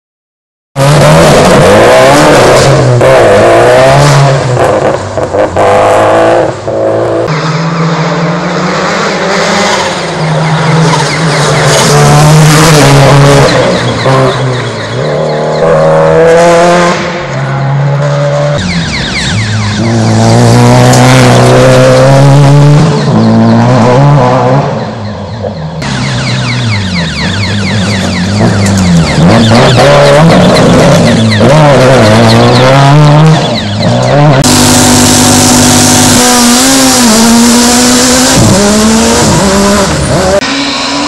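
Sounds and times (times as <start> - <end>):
rally car engines revving: 0.8 - 41.0.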